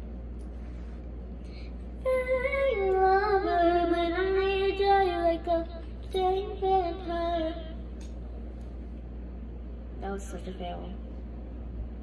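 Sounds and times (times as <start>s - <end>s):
girl singing: 2.0s - 7.8s.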